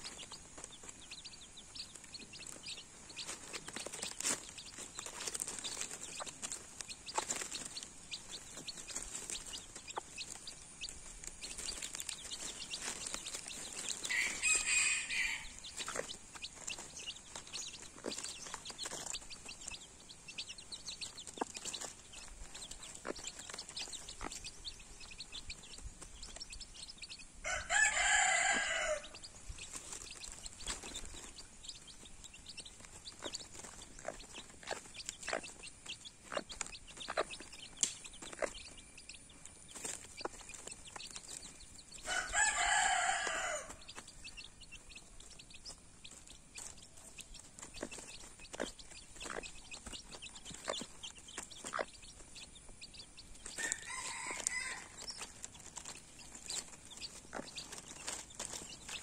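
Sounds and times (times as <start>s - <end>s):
chickens pecking taps: 0.0s - 26.7s, 27.8s - 59.0s
rooster crowing: 14.1s - 15.6s, 27.4s - 29.2s, 42.0s - 43.8s, 53.6s - 55.0s.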